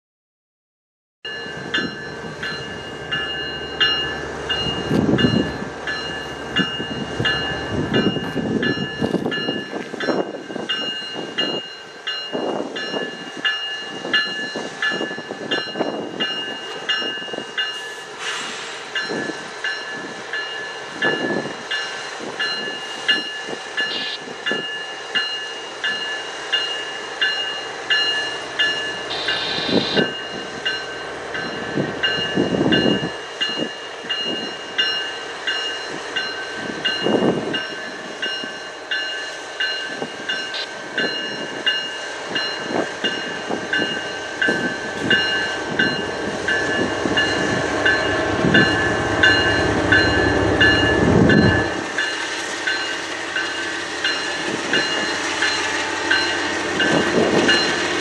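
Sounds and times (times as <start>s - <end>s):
bell ringing: 1.3s - 18.0s, 22.5s - 58.0s
freight train rumbling past: 1.3s - 58.0s.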